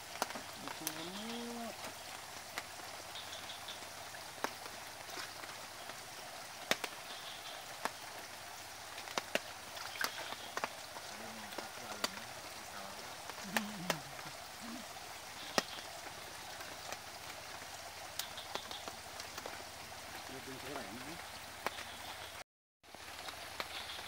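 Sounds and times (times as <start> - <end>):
steady outdoor hiss: 0.0 - 24.0
faint voices: 11.1 - 14.9.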